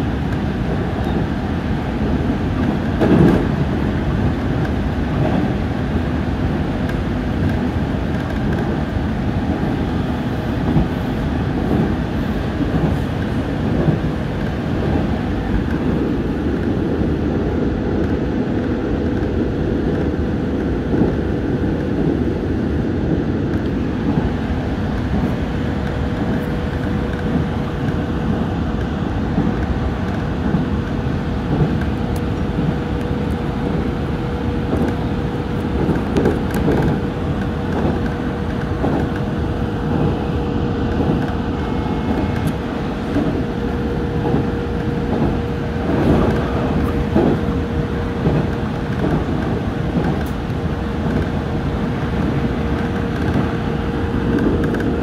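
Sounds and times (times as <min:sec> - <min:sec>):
wheels clattering over rail joints: 0:00.0 - 0:16.9, 0:23.1 - 0:55.0
train motor hum: 0:00.0 - 0:55.0
train wheels on rails: 0:00.0 - 0:55.0.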